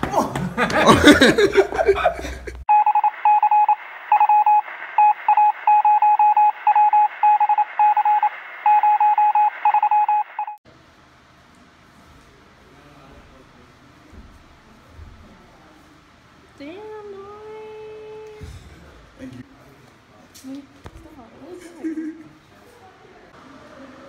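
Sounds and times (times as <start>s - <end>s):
morse code beeping: 2.7s - 10.6s.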